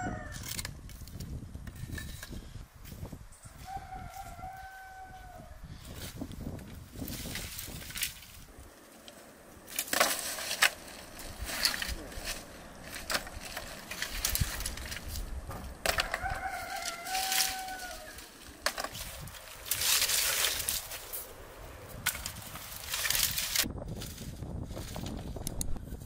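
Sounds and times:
rooster crowing: 0:00.0 - 0:00.4, 0:03.4 - 0:05.7, 0:15.9 - 0:18.4
dry branches crackling and snapping: 0:00.1 - 0:02.4, 0:05.8 - 0:25.8.

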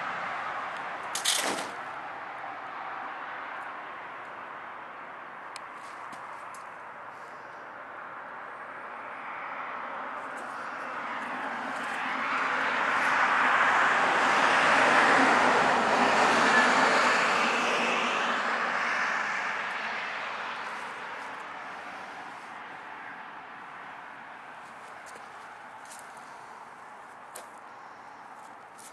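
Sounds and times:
passing vehicle engine rushing: 0:08.9 - 0:26.7.

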